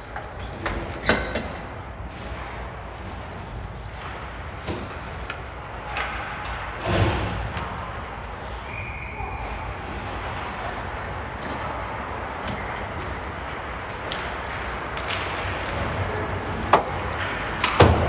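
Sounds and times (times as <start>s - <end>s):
low arena hum: 0.0s - 18.0s
sticks and puck clacking on ice: 3.8s - 6.8s, 11.6s - 18.0s.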